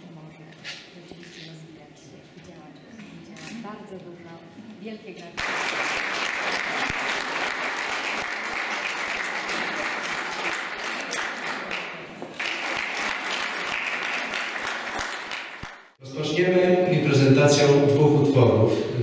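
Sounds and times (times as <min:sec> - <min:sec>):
audience applauding: 0:05.4 - 0:16.0.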